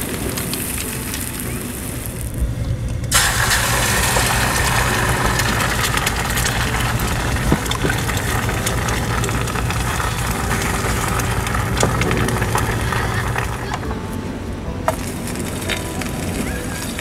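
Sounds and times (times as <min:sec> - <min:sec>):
low engine-like hum: 0:00.0 - 0:17.0
egg sizzling in hot oil: 0:03.1 - 0:13.7.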